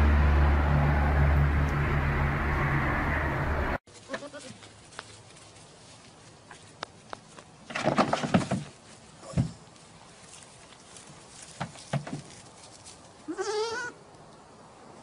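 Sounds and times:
goat bleating: 4.0s - 4.6s, 13.2s - 14.0s.

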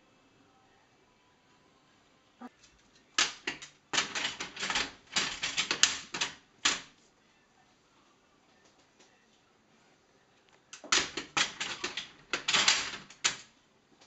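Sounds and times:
plastic dog flap clattering: 3.2s - 6.9s, 10.8s - 13.5s.

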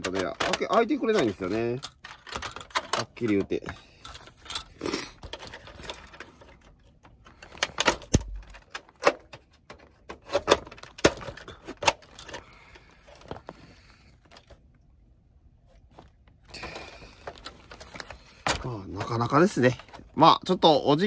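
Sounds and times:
plastic clips clicking and knocking: 0.0s - 6.1s
handling noise: 0.0s - 14.6s.

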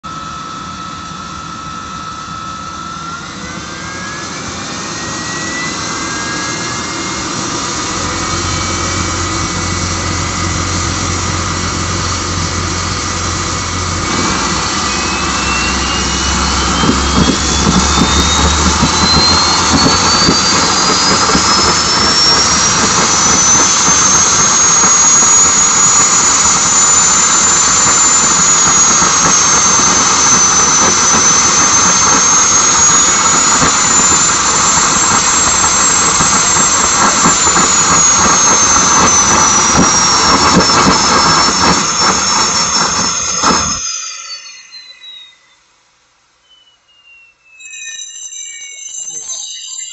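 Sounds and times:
jet engine whine climbing in pitch: 0.0s - 45.8s, 46.4s - 49.9s
rushing air: 5.8s - 44.2s.

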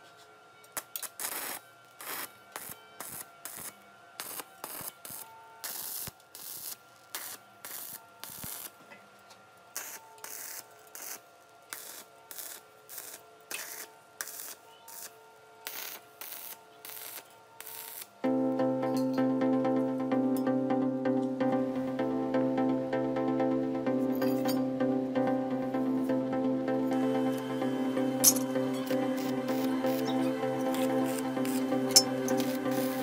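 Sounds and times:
welding arc crackle and sizzle: 0.7s - 18.2s, 28.2s - 33.0s.

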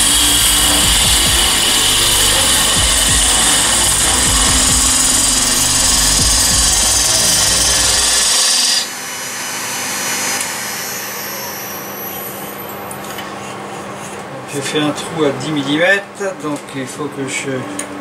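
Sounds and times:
gouge cutting wood on lathe: 0.0s - 12.1s
lathe humming: 0.0s - 15.4s.

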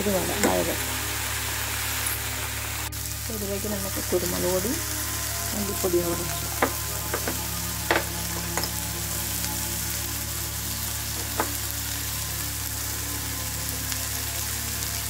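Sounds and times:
vegetables sizzling in oil: 0.0s - 15.0s
utensil tapping pan: 6.1s - 8.8s, 11.2s - 11.6s.

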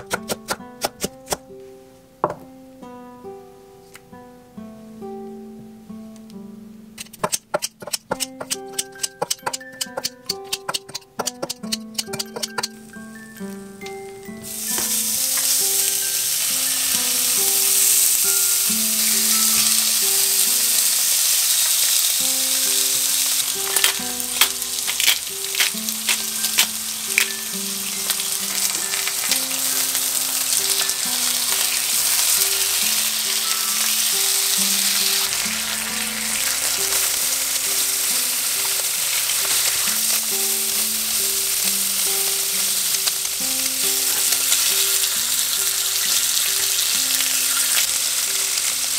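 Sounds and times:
soft background music: 0.0s - 48.9s
metal tongs knocking on pan: 7.2s - 12.8s
meat sizzling in a pan: 12.0s - 48.9s.

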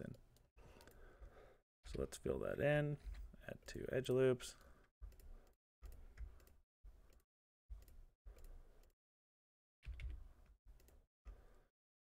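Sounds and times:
computer mouse clicks: 4.6s - 9.0s, 9.8s - 11.4s.

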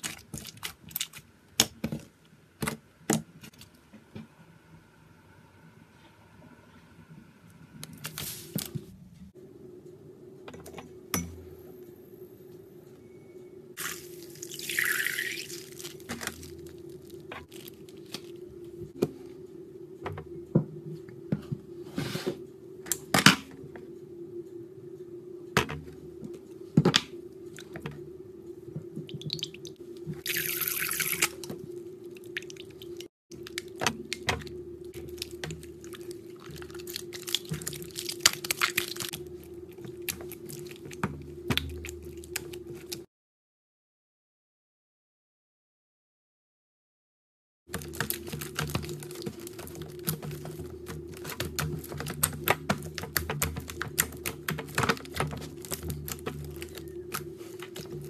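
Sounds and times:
slime squelching: 0.0s - 2.0s, 13.8s - 18.4s, 29.1s - 43.1s, 47.7s - 58.0s
steady low hum: 3.4s - 14.4s, 15.4s - 30.2s, 31.4s - 43.1s.

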